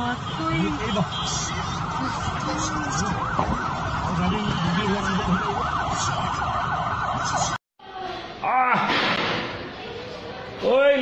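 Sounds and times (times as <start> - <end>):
street noise: 0.0 - 11.0
siren yelping: 0.6 - 7.6.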